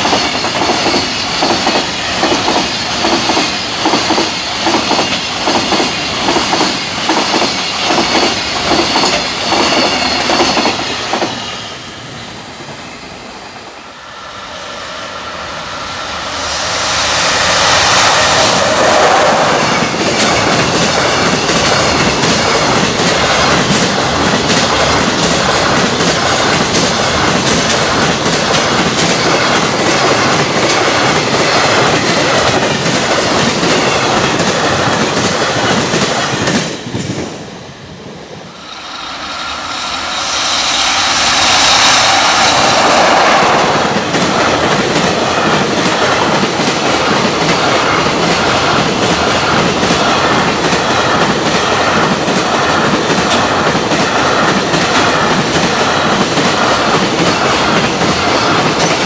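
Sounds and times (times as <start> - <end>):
freight train wheels clattering: 0.0 - 11.7, 16.3 - 37.4, 38.6 - 59.0.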